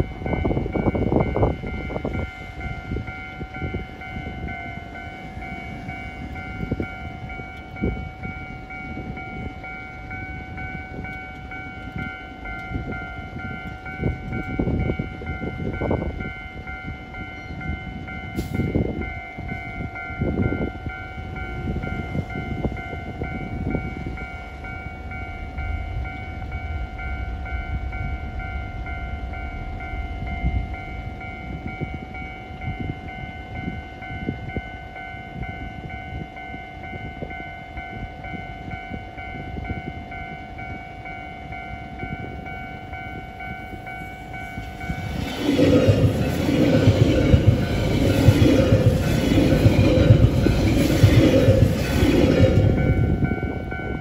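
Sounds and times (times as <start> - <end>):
level crossing alarm ringing: 0.0 - 54.0
low rumble: 24.9 - 32.1, 43.8 - 54.0
train rushing past: 41.5 - 54.0.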